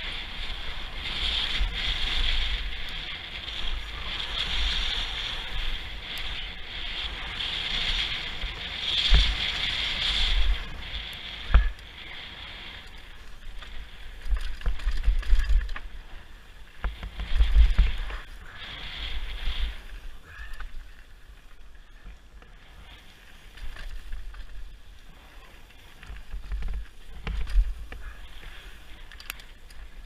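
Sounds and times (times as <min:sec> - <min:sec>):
wind buffeting microphone: 0:00.0 - 0:21.3
bike rattling: 0:00.0 - 0:30.0
tyres on loose ground: 0:00.0 - 0:30.0
bike knocking on bumps: 0:11.4 - 0:11.8, 0:16.7 - 0:18.2, 0:26.0 - 0:28.1.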